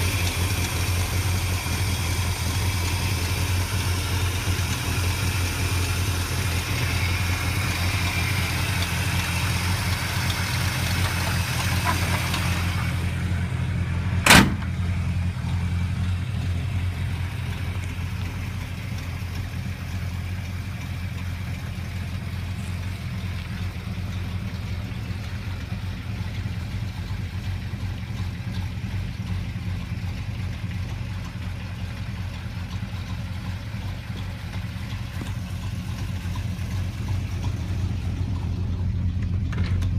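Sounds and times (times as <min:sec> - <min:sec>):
car engine idling: 0:00.0 - 0:39.9
sharp knock: 0:14.2 - 0:14.7.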